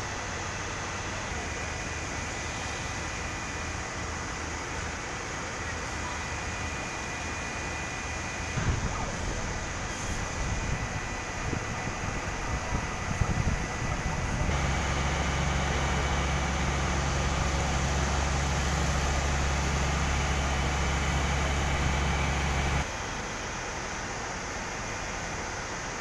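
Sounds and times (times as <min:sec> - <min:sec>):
industrial machinery drone: 0:00.0 - 0:25.1
wind buffeting microphone: 0:08.6 - 0:14.6.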